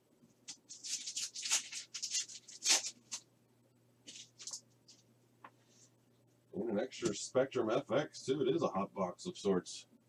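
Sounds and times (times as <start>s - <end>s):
cards and wrappers rustling: 0.5s - 3.3s, 4.0s - 5.0s.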